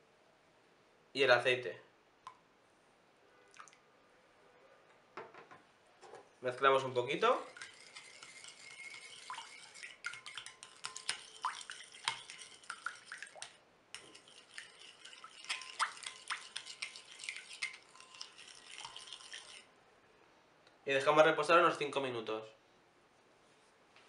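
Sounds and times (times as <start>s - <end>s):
liquid sloshing: 7.1s - 19.7s.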